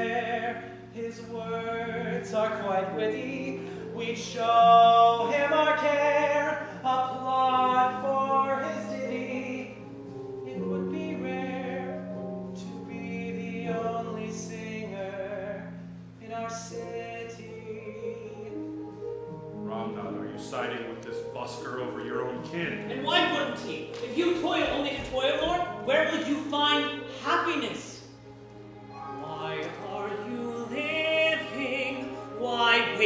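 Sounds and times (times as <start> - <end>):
man singing: 0.0 - 9.9, 29.0 - 33.0
instrumental accompaniment: 0.0 - 33.0.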